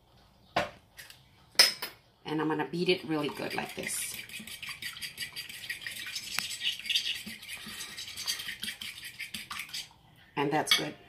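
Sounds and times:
fork beating egg in glass bowl: 0:03.0 - 0:10.0.

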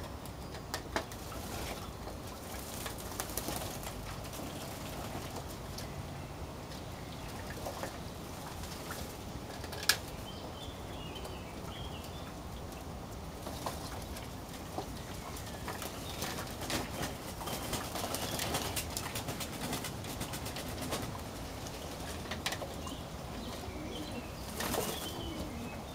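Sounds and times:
pigeon wings flapping: 0:02.6 - 0:05.5, 0:15.8 - 0:21.2
pigeons cooing: 0:22.7 - 0:25.9.

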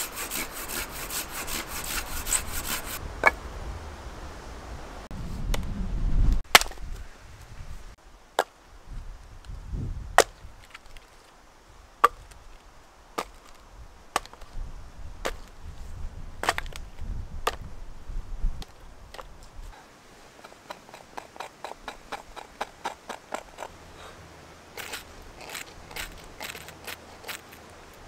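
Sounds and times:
hatchet chopping logs: 0:00.0 - 0:03.4, 0:06.4 - 0:06.9, 0:10.2 - 0:11.0, 0:12.0 - 0:12.4, 0:13.2 - 0:14.5, 0:16.4 - 0:16.8, 0:20.4 - 0:23.8, 0:24.8 - 0:27.6.

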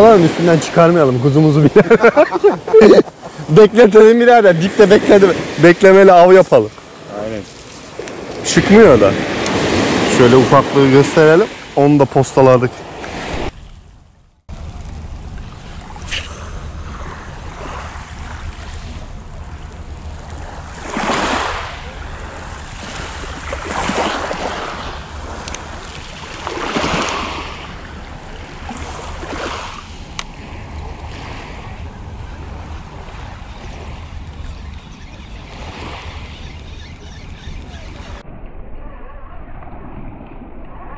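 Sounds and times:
waves washing onto pebbles: 0:04.6 - 0:13.6, 0:14.5 - 0:31.6
low rumble: 0:13.5 - 0:20.8, 0:38.2 - 0:40.9.

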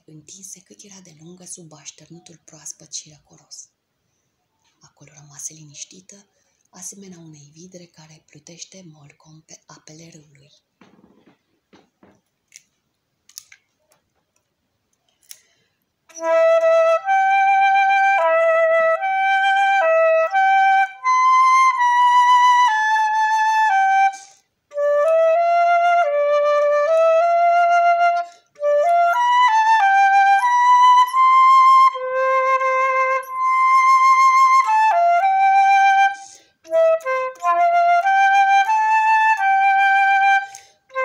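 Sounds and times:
flute slow melody: 0:16.1 - 0:41.0.

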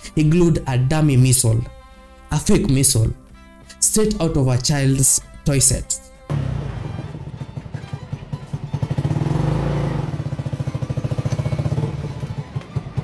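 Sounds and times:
small motorcycle engine running: 0:06.3 - 0:13.0.

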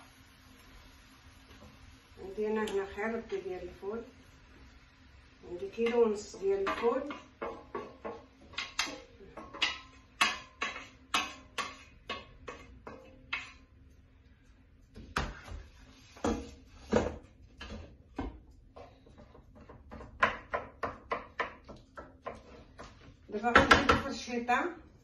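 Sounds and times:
wooden spatula knocking on pots: 0:05.6 - 0:13.7, 0:14.9 - 0:24.6.

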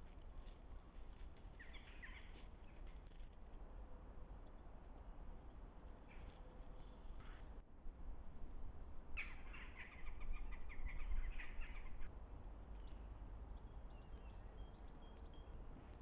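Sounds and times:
wind rumble on microphone: 0:06.9 - 0:16.0.

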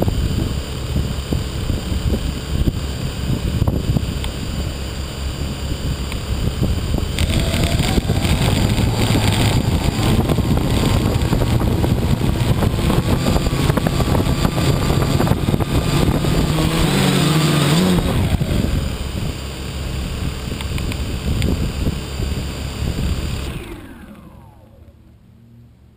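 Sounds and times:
wind buffeting microphone: 0:00.0 - 0:24.7
drone motors whining: 0:07.0 - 0:19.4, 0:20.5 - 0:25.2.

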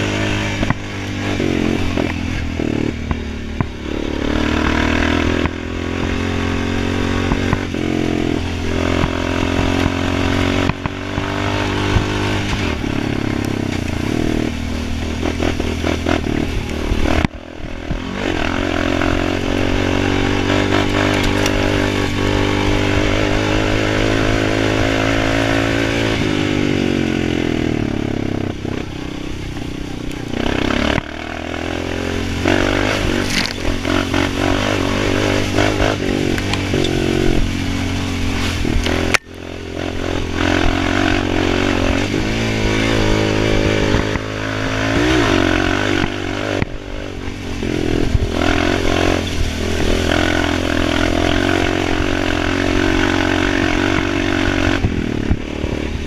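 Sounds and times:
quad engine revving under load: 0:00.0 - 0:56.0.

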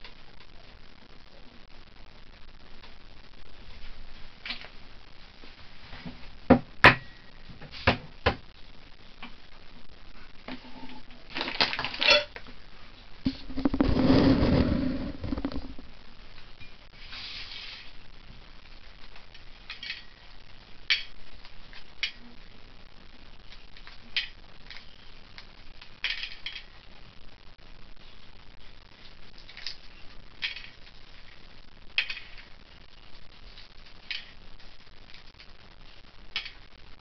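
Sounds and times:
scrape on plate: 0:17.0 - 0:17.9.

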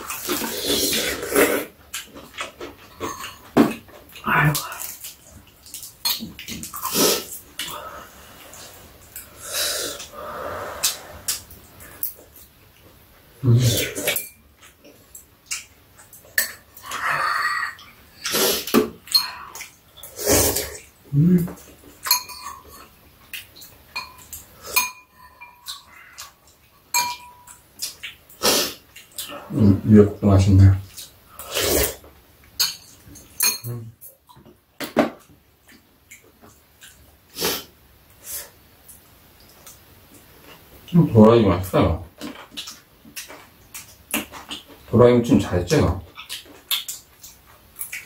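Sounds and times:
noisy slurping: 0:00.0 - 0:03.2, 0:16.8 - 0:21.8, 0:31.0 - 0:32.1
spoons and chopsticks clicking bowls: 0:22.0 - 0:22.8
spoons clinking against bowls: 0:22.0 - 0:22.9, 0:23.9 - 0:26.3, 0:26.9 - 0:27.6, 0:32.6 - 0:34.2.

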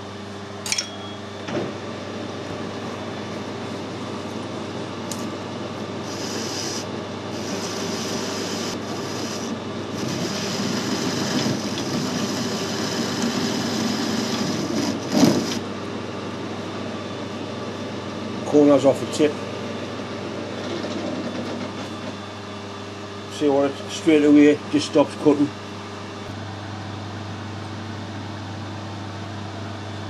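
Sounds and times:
lathe spindle running: 0:02.4 - 0:22.6
lathe tool cutting hiss: 0:06.0 - 0:15.6.

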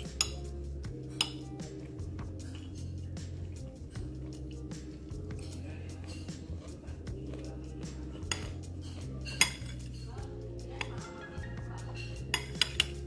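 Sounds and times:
spoon clinking against ceramic bowl: 0:00.0 - 0:03.0, 0:08.1 - 0:10.2, 0:10.8 - 0:13.0.

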